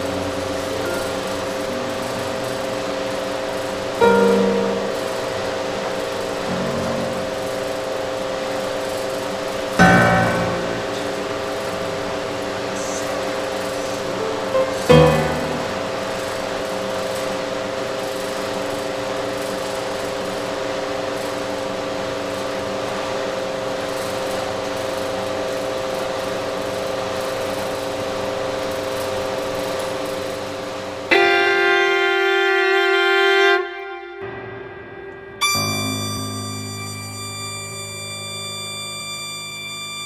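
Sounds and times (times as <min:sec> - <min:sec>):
droning music: 0:00.0 - 0:17.3, 0:31.0 - 0:40.0
loud held pitched tone: 0:00.0 - 0:18.3, 0:29.8 - 0:40.0.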